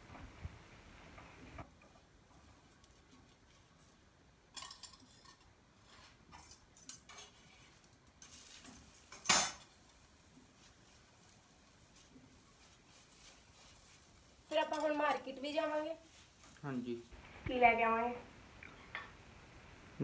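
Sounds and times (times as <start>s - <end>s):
metal utensils clinking on pan: 4.5s - 5.5s, 6.3s - 9.8s, 14.5s - 16.6s
metal bangles jingling: 14.5s - 16.0s.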